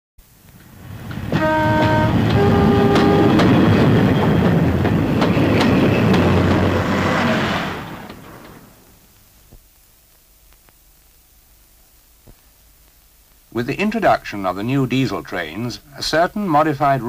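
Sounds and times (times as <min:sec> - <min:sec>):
train wheels clicking over rails: 0:00.5 - 0:09.0
train two-note horn: 0:01.3 - 0:03.7.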